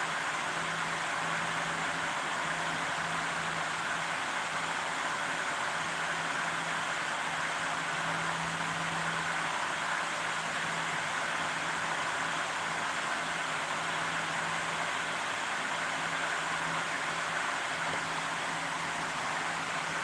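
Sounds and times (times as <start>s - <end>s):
steady hiss: 0.0s - 20.0s.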